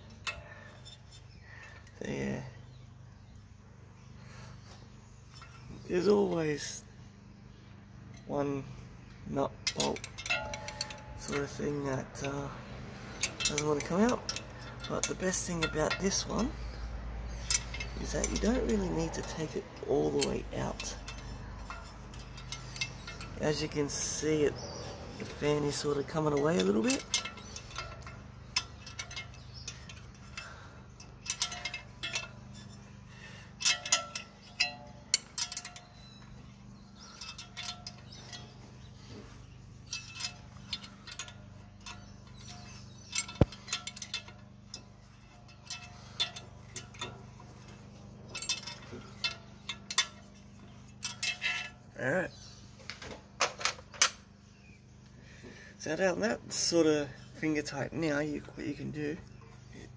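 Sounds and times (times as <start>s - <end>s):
wrench and metal parts clinking: 0.0s - 2.5s, 5.3s - 6.9s, 8.0s - 54.8s.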